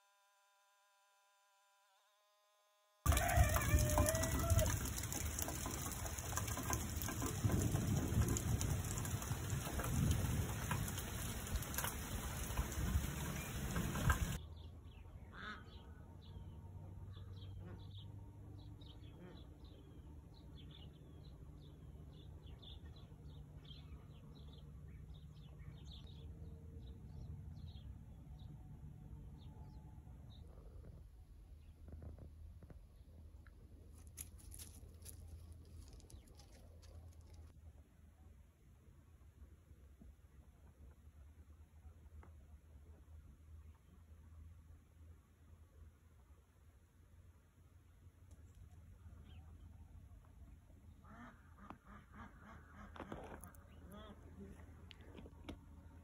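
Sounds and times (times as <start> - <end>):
steady rain falling: 3.1 - 14.4.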